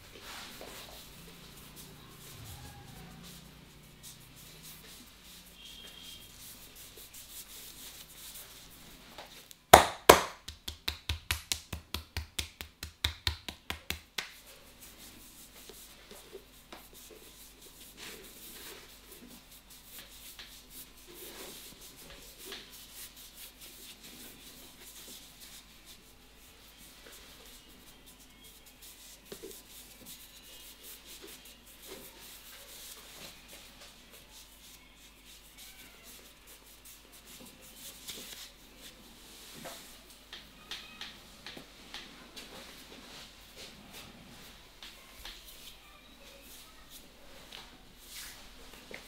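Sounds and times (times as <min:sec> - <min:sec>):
hands rubbing skin and hair: 0:00.0 - 0:49.0
sharp hand slaps: 0:09.8 - 0:14.4.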